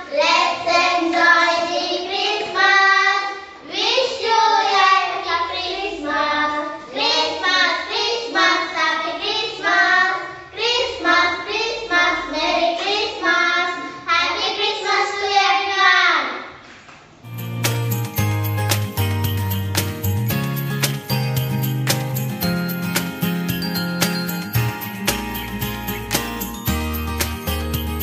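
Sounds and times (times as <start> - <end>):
girls singing together: 0.0 - 15.8.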